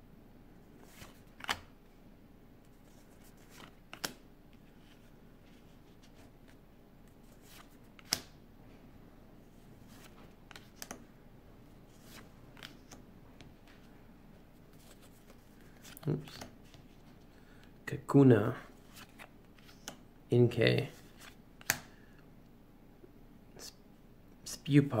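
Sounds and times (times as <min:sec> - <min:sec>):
faint room noise: 0:00.0 - 0:25.0
cards flicking and slapping: 0:00.8 - 0:01.7, 0:03.4 - 0:04.2, 0:07.5 - 0:08.4, 0:10.0 - 0:11.0, 0:12.0 - 0:13.0, 0:14.8 - 0:16.8, 0:21.1 - 0:22.0.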